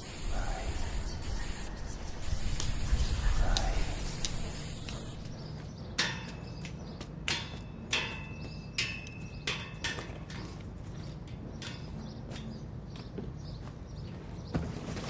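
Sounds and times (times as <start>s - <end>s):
spray-paint can hissing: 0.0s - 5.3s.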